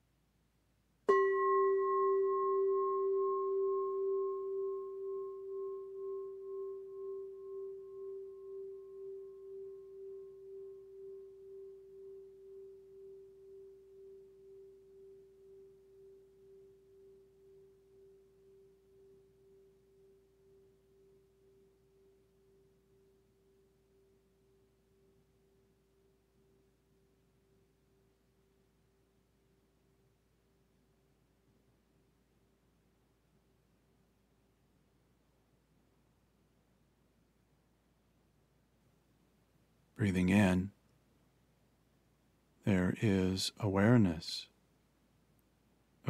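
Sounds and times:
singing bowl struck and ringing: 1.1s - 24.0s.

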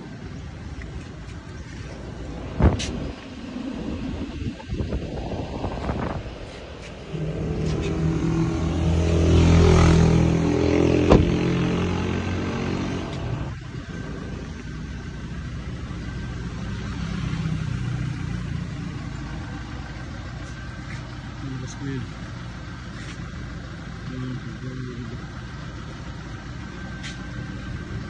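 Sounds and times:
low steady engine hum: 0.0s - 28.0s
vehicle passing by: 1.7s - 14.4s, 15.8s - 21.0s.

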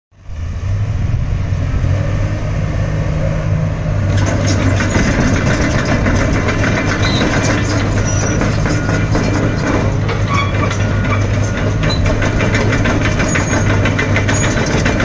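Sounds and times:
excavator diesel engine humming: 0.2s - 15.0s
metallic clatter of track chains: 4.1s - 15.0s.

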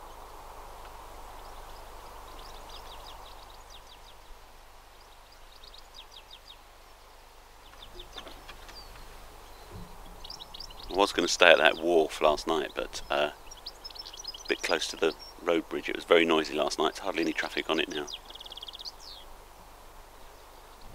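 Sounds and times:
faint steady hiss: 0.0s - 20.9s
small birds trilling: 0.0s - 20.9s.

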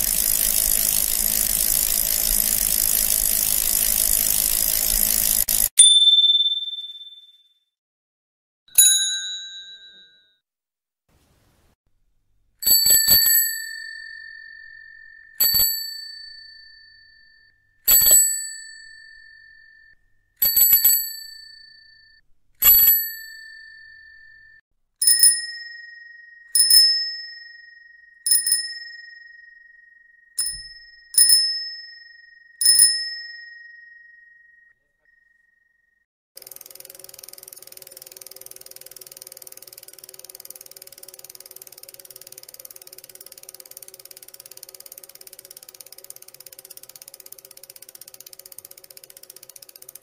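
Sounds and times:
bicycle bell ringing: 0.0s - 7.4s, 8.8s - 10.4s, 12.6s - 35.2s
second bicycle bell ringing: 8.8s - 10.4s, 12.6s - 35.4s.

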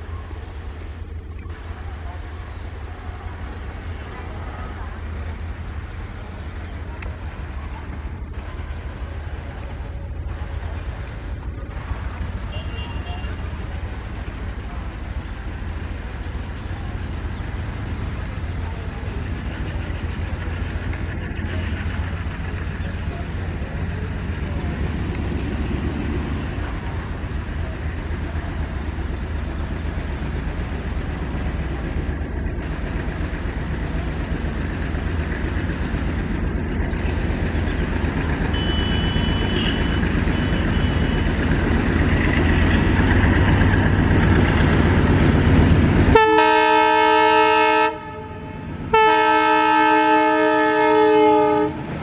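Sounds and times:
diesel locomotive engine chugging: 0.0s - 52.0s
locomotive horn blasts: 38.5s - 41.3s, 46.1s - 51.9s.

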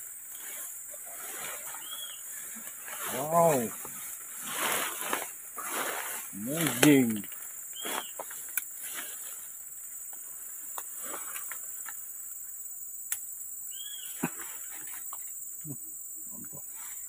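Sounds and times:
insects chorus droning: 0.0s - 17.0s
plant stems clicking and rustling: 1.2s - 9.4s, 10.1s - 12.0s.

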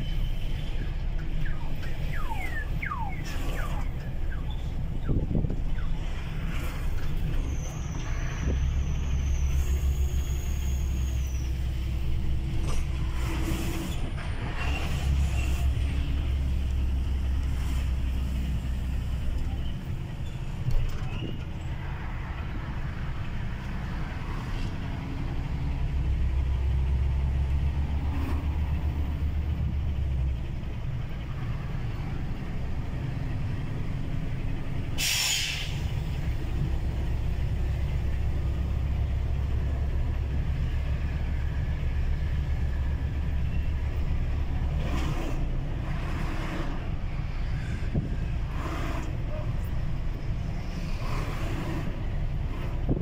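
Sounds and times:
truck engine rumble: 0.0s - 53.0s
air brake hiss: 34.9s - 36.0s.

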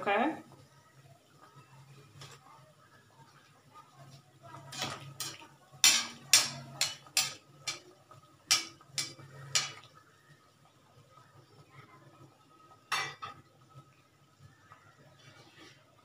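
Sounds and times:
metal spoon clinking on steel pan: 4.7s - 7.9s, 8.5s - 9.9s.

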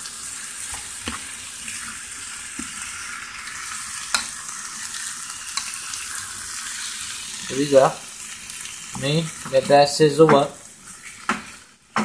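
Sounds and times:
chicken sizzling in a frying pan: 0.0s - 12.0s
wooden spoon knocking on pan: 9.5s - 10.6s.

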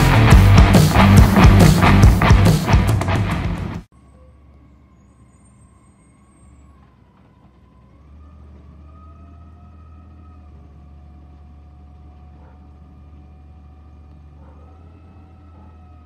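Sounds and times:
distant garbage truck engine drone: 0.0s - 16.0s
faint wavering whines: 4.0s - 12.6s.

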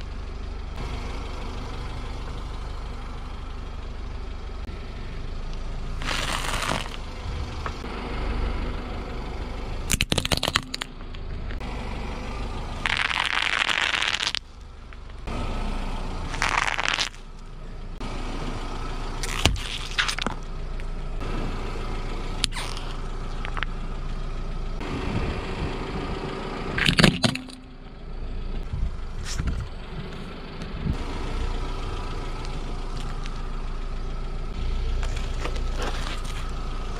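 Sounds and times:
car engine idling: 0.0s - 36.9s
tyre crushing objects: 6.0s - 7.0s, 26.8s - 27.6s.

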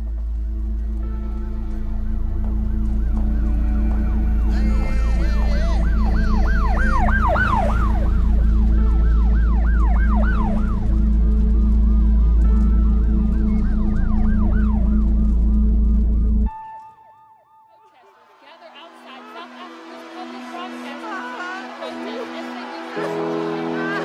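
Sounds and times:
emergency sirens wailing: 0.0s - 16.6s, 17.8s - 24.0s
low rumble: 0.0s - 16.6s.

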